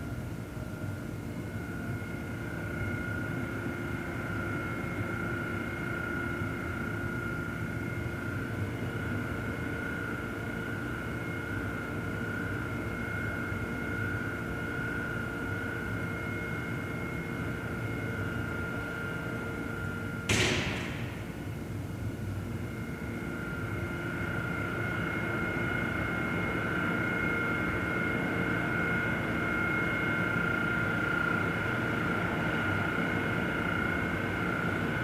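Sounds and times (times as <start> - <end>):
hum of held tones: 0.0 - 35.0
loud bang with echo: 20.3 - 21.7.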